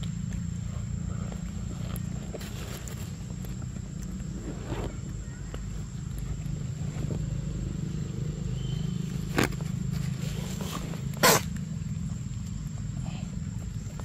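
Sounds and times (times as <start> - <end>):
monkey biting corn cob crunches: 10.6 - 11.7.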